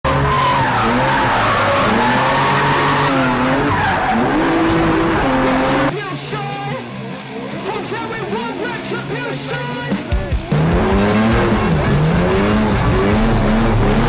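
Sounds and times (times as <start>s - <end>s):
car engine revving hard: 0.1s - 5.9s, 10.4s - 14.0s
tyres squealing: 0.1s - 5.9s
music: 3.7s - 14.0s.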